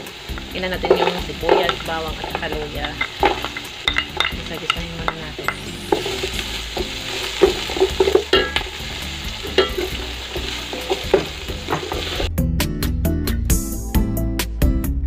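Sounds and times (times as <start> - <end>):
food sizzling in hot oil: 0.0 - 12.3
music with steady beat: 0.0 - 15.0
wooden spatula scraping pot: 0.8 - 12.3.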